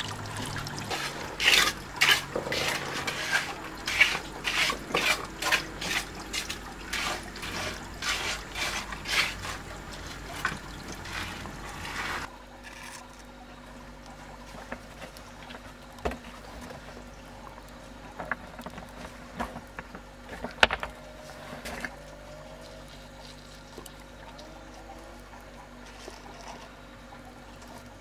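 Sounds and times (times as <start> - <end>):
faint steady hum: 0.0 - 28.0
hands scraping mortar: 0.8 - 12.3.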